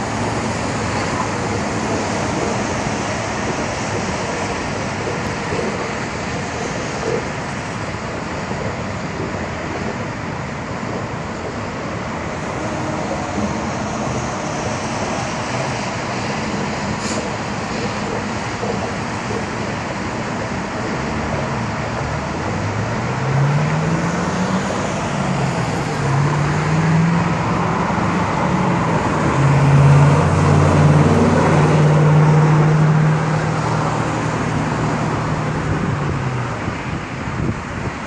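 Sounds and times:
traffic noise: 0.0s - 38.0s
car engine accelerating: 21.0s - 36.2s.

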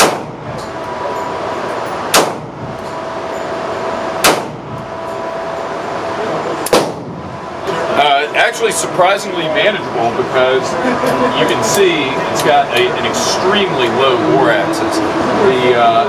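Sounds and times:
pistol shots indoors: 0.0s - 0.6s, 2.0s - 3.2s, 4.2s - 5.1s, 6.6s - 7.3s
steady background hum: 0.0s - 16.0s.

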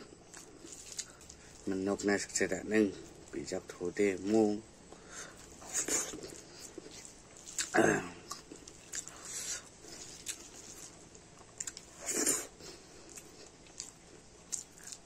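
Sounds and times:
wet chewing and lip-smacking: 0.3s - 1.7s, 4.9s - 15.0s
slurping mouthful: 12.0s - 12.6s.

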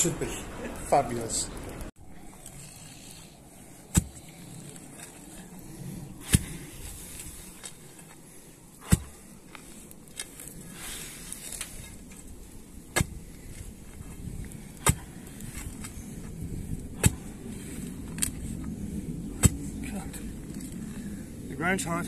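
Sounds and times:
digging bar striking hard ground: 3.9s - 4.2s, 6.2s - 6.6s, 8.8s - 9.2s, 12.9s - 13.4s, 14.8s - 15.9s, 17.0s - 17.4s, 19.4s - 19.7s.

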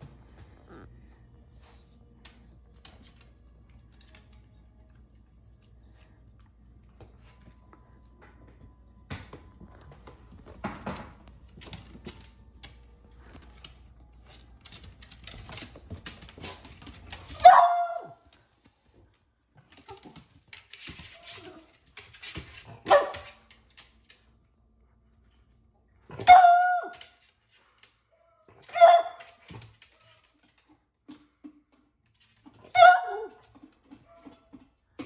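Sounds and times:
dog barking: 17.4s - 18.2s.

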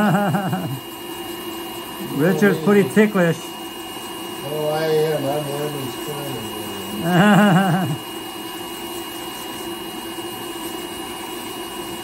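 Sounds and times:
burst of laughter: 0.0s - 0.8s, 7.0s - 8.0s
electric nail drill humming: 0.0s - 12.0s.

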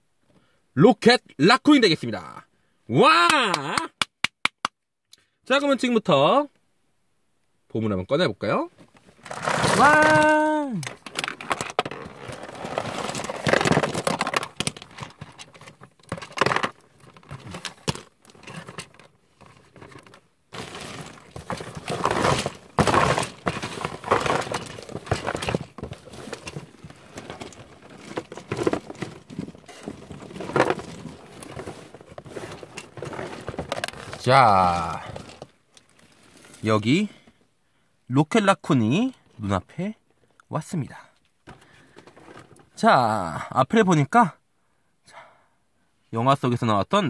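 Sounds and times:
cardboard box rustling and scraping: 9.1s - 36.6s.

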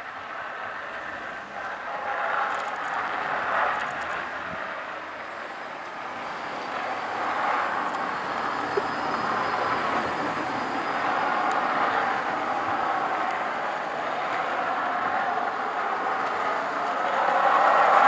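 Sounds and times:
skateboard wheels rolling on asphalt: 0.0s - 18.0s.

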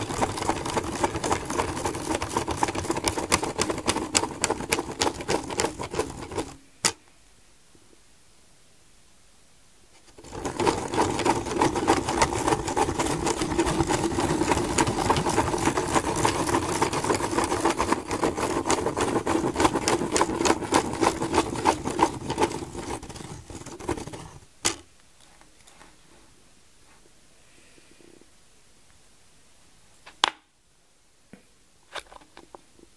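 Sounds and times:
pen scratching on paper: 0.0s - 6.6s, 10.1s - 24.5s.

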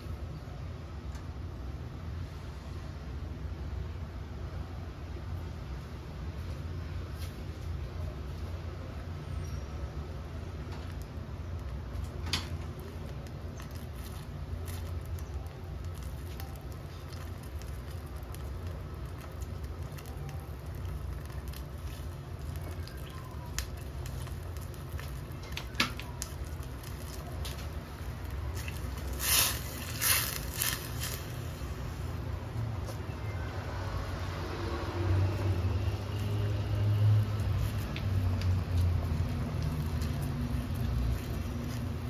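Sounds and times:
broth simmering and bubbling: 0.1s - 42.0s
spatula stirring pot: 13.4s - 31.4s.

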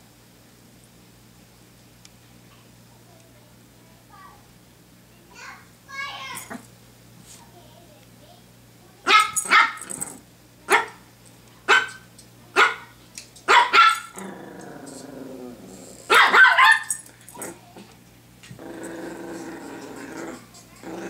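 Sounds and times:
dog barking: 9.0s - 9.9s, 10.7s - 11.0s, 11.7s - 14.2s, 16.1s - 17.0s
dog growling: 9.8s - 10.2s, 14.1s - 16.1s, 17.3s - 21.0s.

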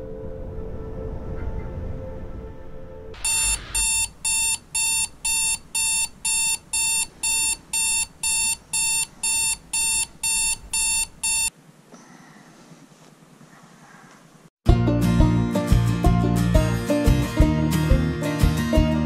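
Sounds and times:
alarm clock beeping: 3.2s - 11.5s.

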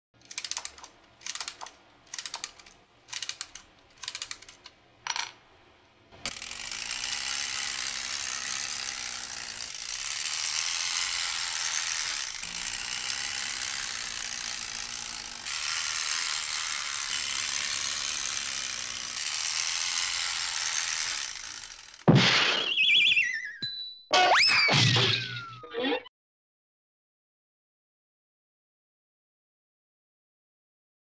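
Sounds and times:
clockwork motor ratcheting whir: 0.2s - 4.7s, 6.2s - 22.1s.

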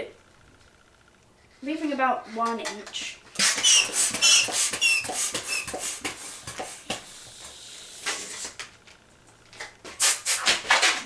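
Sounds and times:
balloon squeaking and rubbing: 3.4s - 6.8s
taps on balloon: 3.4s - 7.0s.

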